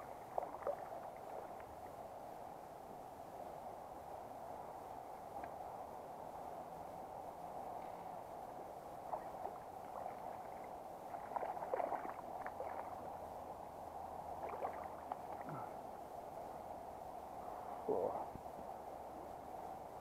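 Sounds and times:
shallow river burbling: 0.0 - 2.8, 7.7 - 16.6.

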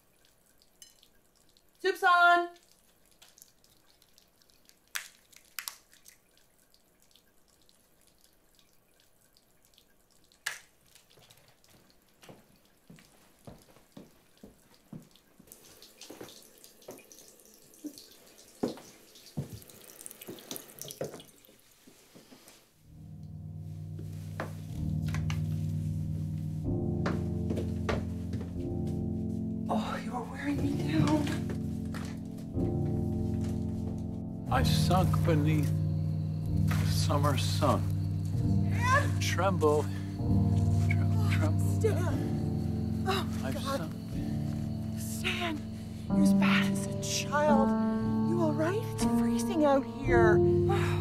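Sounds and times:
tap water running into sink: 13.6 - 21.6, 30.4 - 34.0
low sustained music: 22.9 - 51.0.

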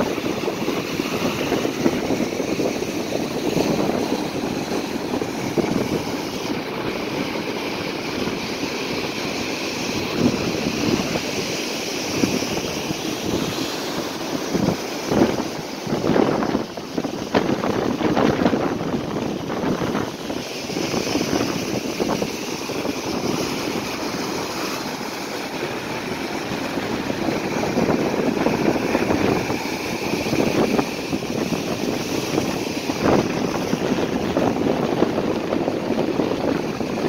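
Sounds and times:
surf breaking over rocky shore: 0.0 - 37.0.

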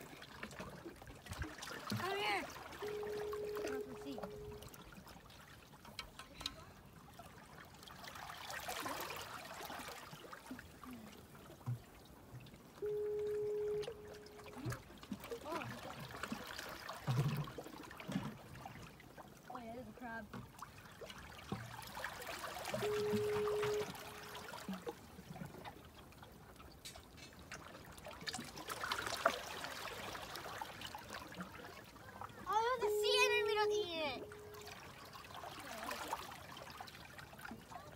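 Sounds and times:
small splashes and drips: 0.0 - 37.9
water lapping among rocks: 0.0 - 37.9
loud steady tone: 2.8 - 4.7, 12.8 - 14.6, 22.8 - 24.3, 32.8 - 34.8.

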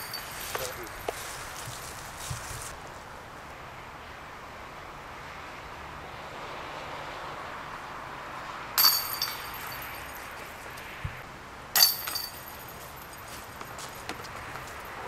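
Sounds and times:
disc hitting basket chains: 0.0 - 2.1, 8.8 - 10.9, 11.8 - 15.0
traffic hum: 0.0 - 15.0.

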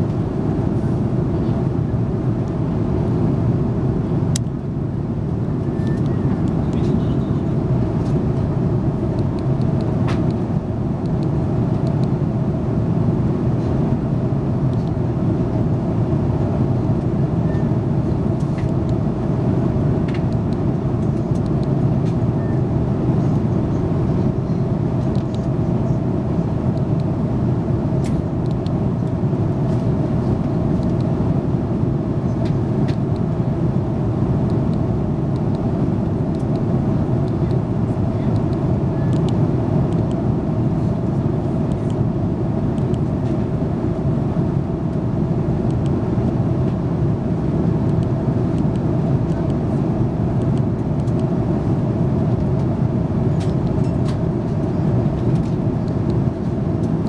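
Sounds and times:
jet airliner cabin noise: 0.0 - 57.0.

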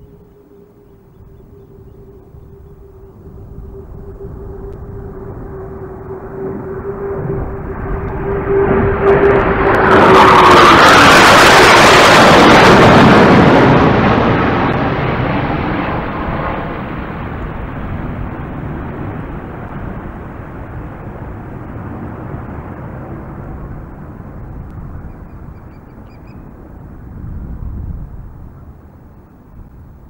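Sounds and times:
low-flying jet aircraft roar: 0.0 - 30.0.

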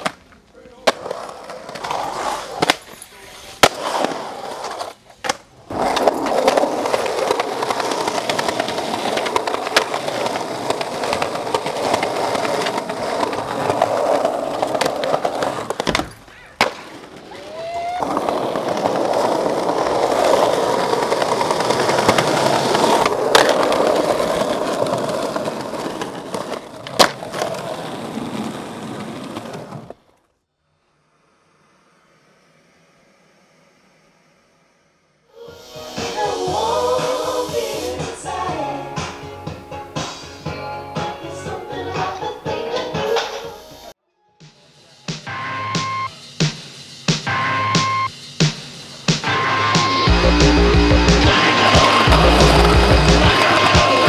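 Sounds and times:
skateboard clacks: 0.0 - 3.0, 3.6 - 30.2, 48.4 - 54.0
skateboard wheels rolling on concrete: 0.0 - 44.0, 47.1 - 54.0.

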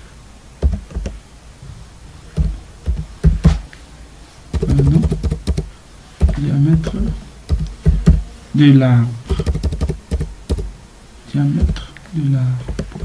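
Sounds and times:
keyboard keys clicking: 0.6 - 1.2, 2.4 - 3.6, 4.5 - 6.4, 7.5 - 8.2, 9.3 - 10.7, 12.7 - 13.0
person speaking: 4.5 - 10.7, 11.3 - 13.0.

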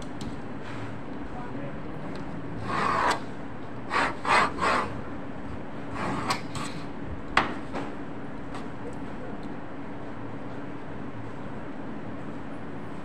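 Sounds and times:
knife scraping sheet material: 2.6 - 3.3, 3.9 - 5.0.

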